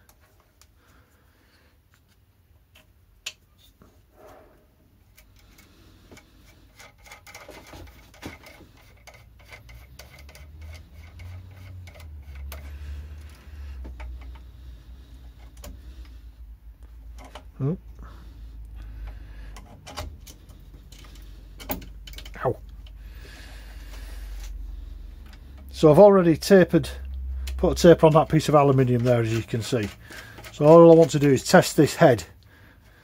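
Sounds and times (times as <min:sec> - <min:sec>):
small metal parts clicking: 0:05.1 - 0:14.5, 0:19.0 - 0:23.0, 0:27.1 - 0:32.0.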